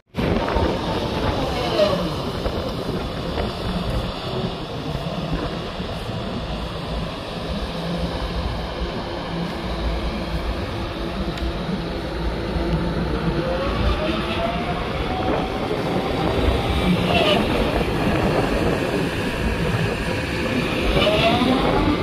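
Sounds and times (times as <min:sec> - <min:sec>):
excavator diesel engine rumble: 0:00.2 - 0:22.0
high squeal: 0:15.9 - 0:18.1, 0:20.7 - 0:22.0.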